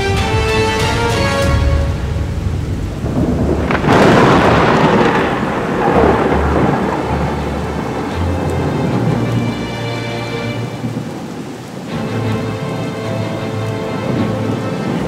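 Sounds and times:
steady rain: 0.0s - 15.0s
thunder crack and rumble: 2.0s - 9.6s.

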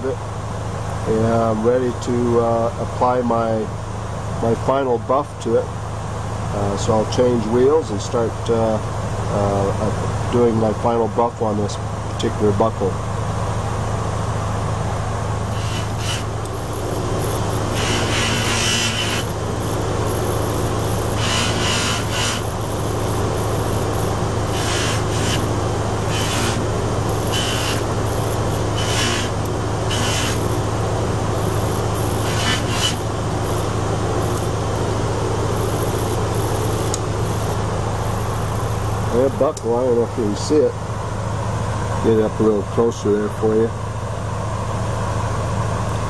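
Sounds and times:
buffing machine motor hum: 14.7s - 39.7s
metal rubbing on buffing wheel: 15.5s - 34.7s, 35.4s - 39.4s.

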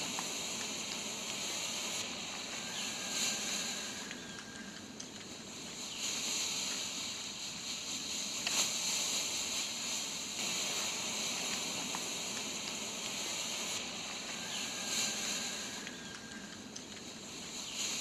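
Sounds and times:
smoke grenade hissing: 5.8s - 16.4s.

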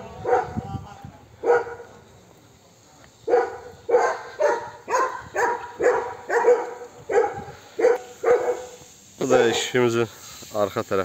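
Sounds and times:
dog barking: 0.2s - 0.6s, 1.4s - 1.9s, 3.3s - 8.8s.

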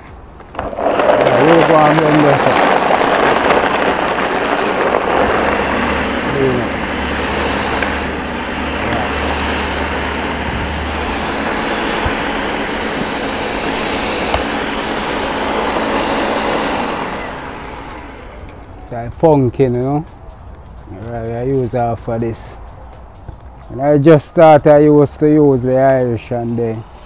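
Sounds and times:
blender running: 0.6s - 18.7s.

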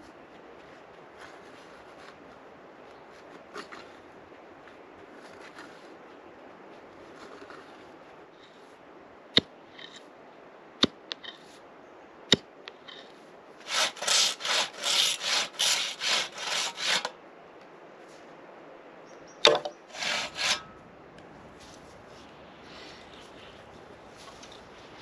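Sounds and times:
hand saw cutting bamboo: 13.6s - 17.2s, 19.5s - 20.7s
sharp knocks: 19.4s - 20.6s.

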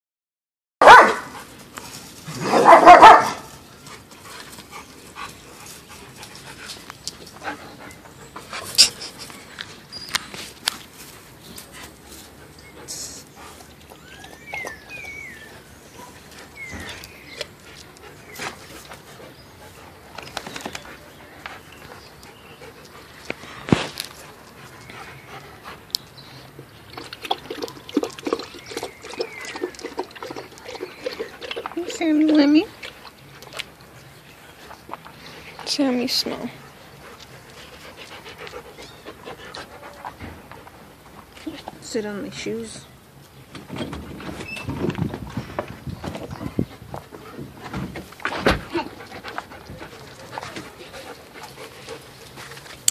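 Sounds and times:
dog barking: 0.8s - 1.4s, 2.5s - 3.5s
dog panting: 3.8s - 9.4s, 11.1s - 26.6s, 36.3s - 41.7s, 48.6s - 52.9s
dog lapping water: 26.9s - 33.0s.

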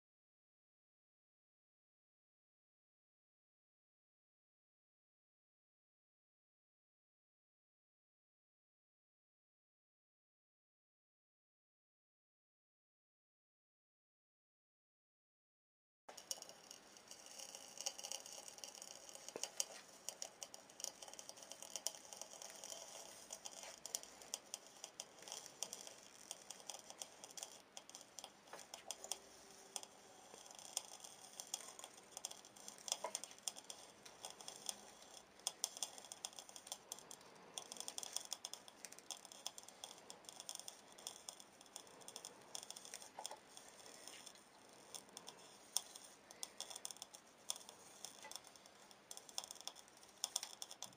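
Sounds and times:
faint steady hum: 16.1s - 50.9s
metal lid crackling and popping: 16.1s - 50.9s.

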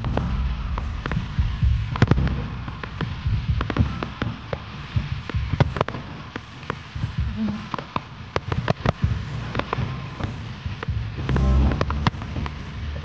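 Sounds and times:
low booming: 0.0s - 5.6s, 10.9s - 13.0s
fireworks cracks and crackles: 0.0s - 13.0s.

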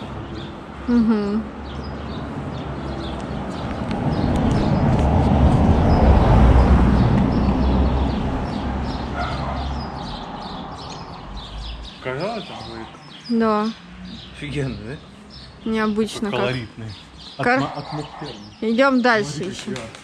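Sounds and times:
car driving past: 2.5s - 11.9s.

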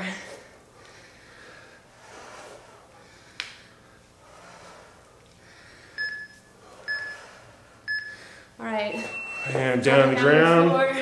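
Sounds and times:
heavy breathing: 0.0s - 8.6s
electronic timer beeps: 6.0s - 7.3s, 7.9s - 8.2s, 8.8s - 9.8s.

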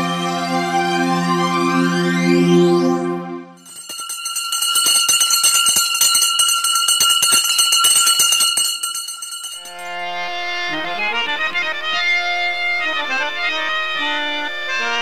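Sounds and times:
small bells jingling: 3.6s - 10.3s
ringing bell tone: 3.6s - 10.9s
sustained organ chord: 9.7s - 15.0s.

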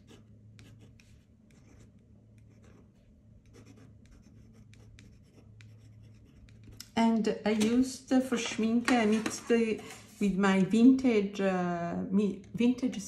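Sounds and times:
pen nib scratching paper: 0.0s - 6.9s.

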